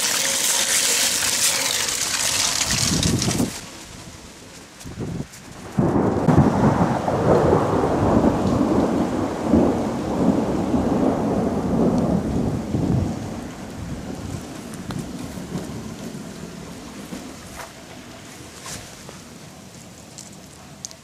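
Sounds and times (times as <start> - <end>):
steady rain: 0.0 - 21.0
thunder rumbling: 1.8 - 18.5.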